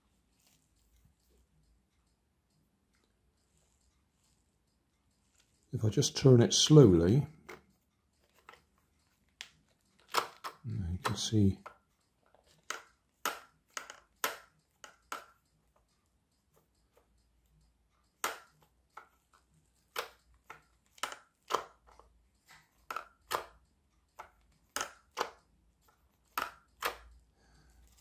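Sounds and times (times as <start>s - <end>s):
plastic mechanism clicks and knocks: 9.4s - 15.4s, 19.9s - 27.1s.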